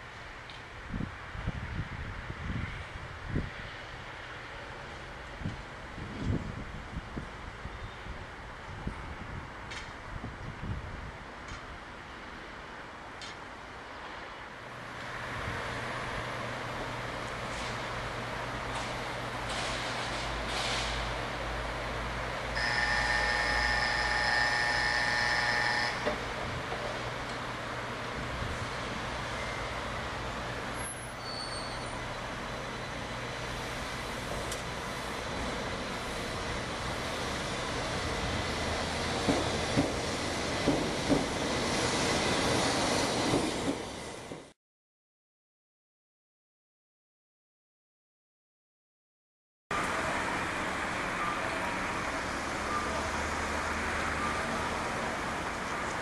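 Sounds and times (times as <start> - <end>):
traffic ambience: 0.0 - 44.3, 49.7 - 56.0
train rumble and hiss: 0.0 - 44.6, 49.8 - 56.0
brief high tones: 22.6 - 26.2.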